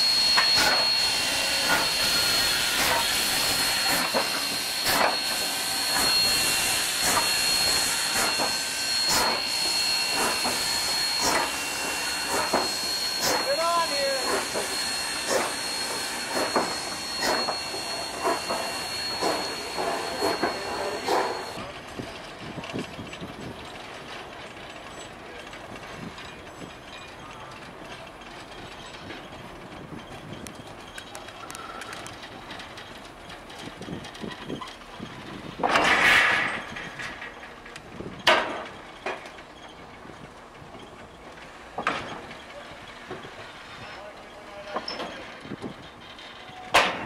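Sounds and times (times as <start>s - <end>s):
hiss of steam: 0.0s - 21.6s
steam locomotive exhaust chuffs: 0.0s - 47.0s.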